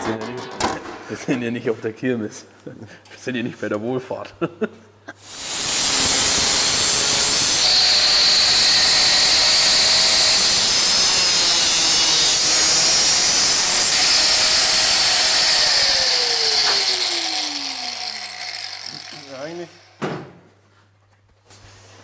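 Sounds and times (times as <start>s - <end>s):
angle grinder cutting sheet metal: 5.2s - 20.0s
grinder disc spinning down: 5.5s - 19.8s.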